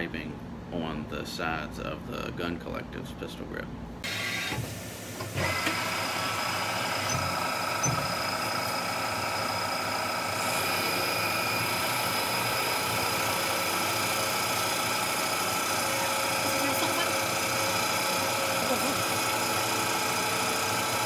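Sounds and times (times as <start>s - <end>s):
milling machine spindle whine: 5.2s - 21.0s.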